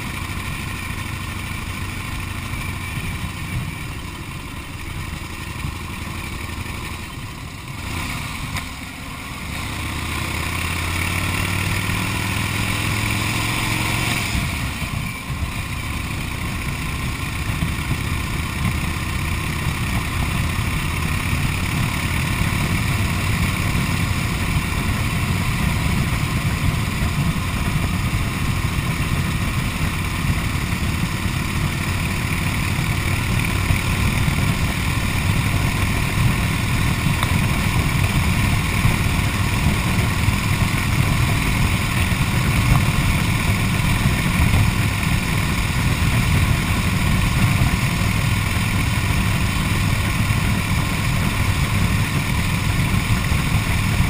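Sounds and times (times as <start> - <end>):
motorcycle engine running: 0.0 - 54.0.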